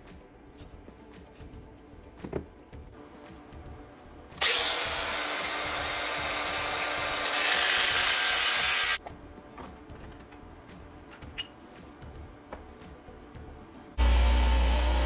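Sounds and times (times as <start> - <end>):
angle grinder cutting aluminum: 4.4 - 9.0, 14.0 - 15.0.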